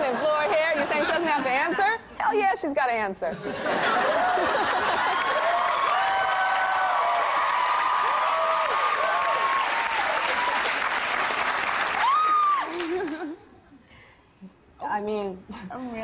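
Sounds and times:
studio audience clapping: 4.8 - 13.3
voices whooping and cheering: 4.9 - 10.9, 11.9 - 12.9.

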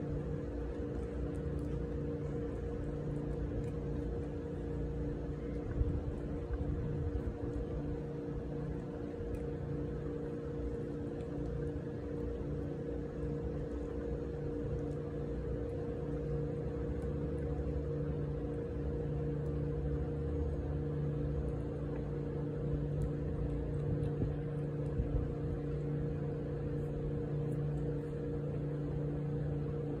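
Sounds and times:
machine hum: 0.0 - 30.0
faint clicks: 8.7 - 12.4.

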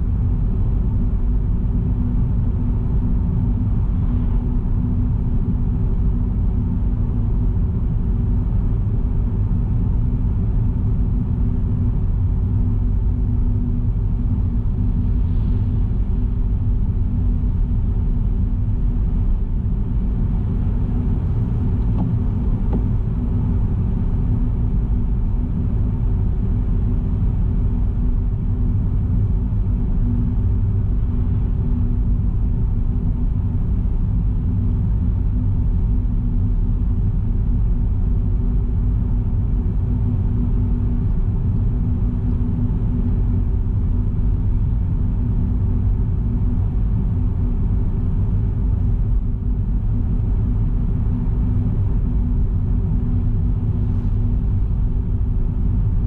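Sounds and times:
steady hum: 0.0 - 56.0
car driving rumble: 19.0 - 24.1.

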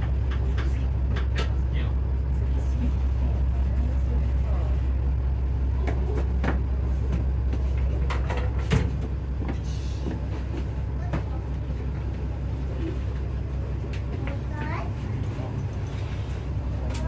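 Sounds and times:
vehicle engine drone: 0.0 - 17.0.

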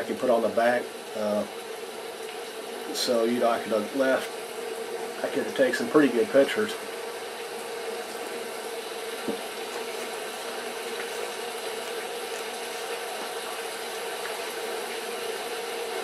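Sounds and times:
mug set down on desk: 9.2 - 9.4.

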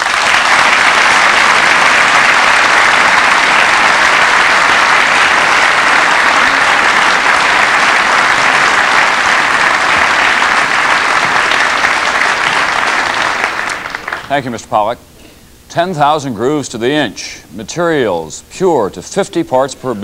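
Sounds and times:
large audience applauding: 0.0 - 14.4.

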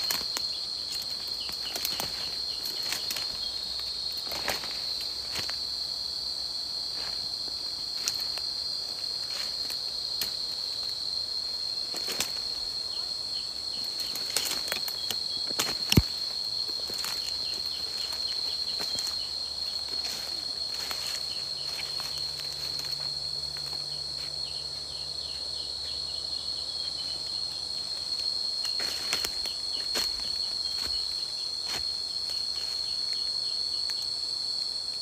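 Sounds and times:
footsteps crunching dry leaves: 0.0 - 5.8, 13.6 - 24.4, 28.2 - 33.0
insects droning: 0.0 - 35.0
twig snapping: 9.7 - 10.4, 14.0 - 17.3.

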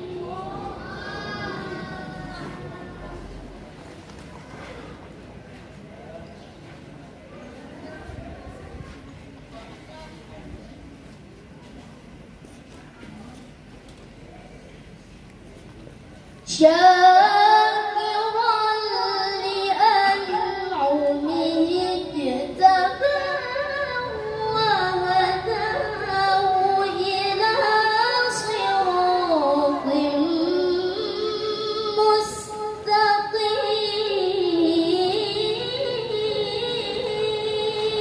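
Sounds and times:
woman chanting into a microphone: 16.5 - 38.0.

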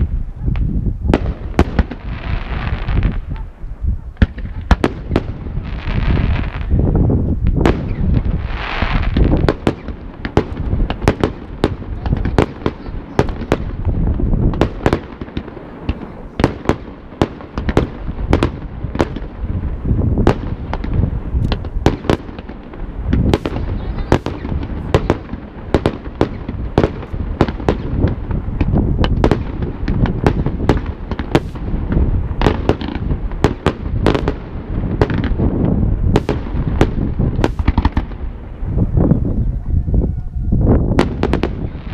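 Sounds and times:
fireworks bangs: 0.0 - 41.9.

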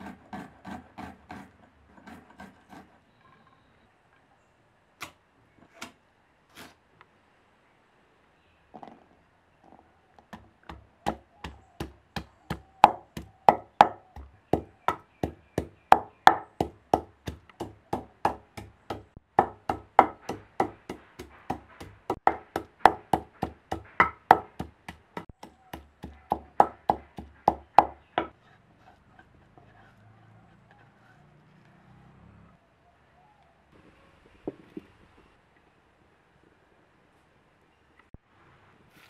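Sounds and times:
wooden pestle pounding in mortar: 10.3 - 28.3.

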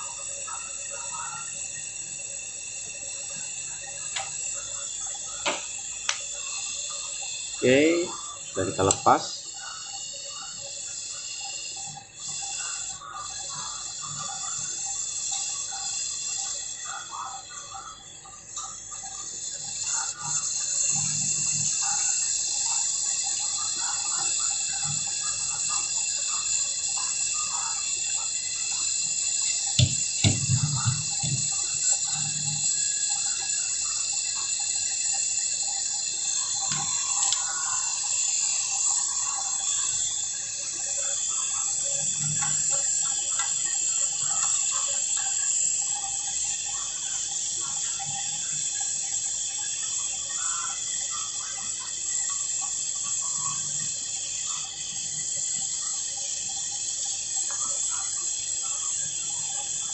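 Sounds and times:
torch flame hissing: 0.0 - 59.9.

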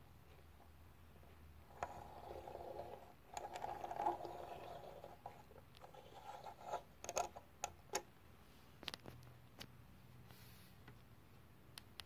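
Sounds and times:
toy rolling across wooden table: 1.7 - 7.4.

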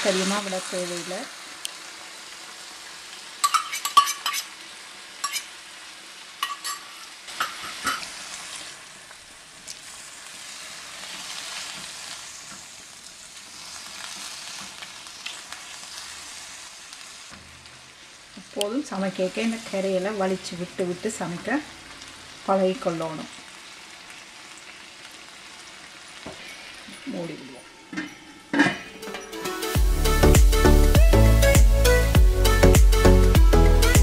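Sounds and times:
curry sizzling in a wok: 0.0 - 34.0
utensils scraping the pan: 3.4 - 4.6, 5.2 - 5.5, 6.4 - 8.2.

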